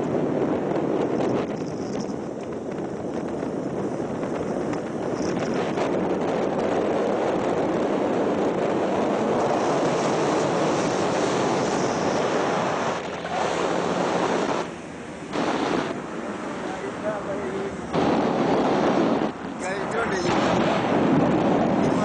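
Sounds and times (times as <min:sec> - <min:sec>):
vehicle road noise: 0:00.0 - 0:22.0
wind on microphone: 0:00.0 - 0:22.0.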